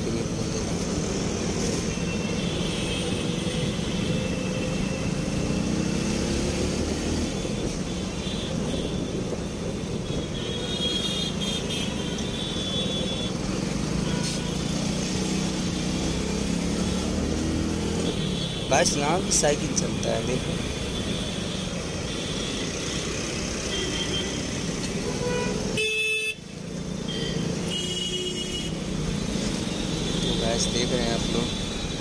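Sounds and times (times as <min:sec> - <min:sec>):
traffic hum: 0:00.0 - 0:32.0.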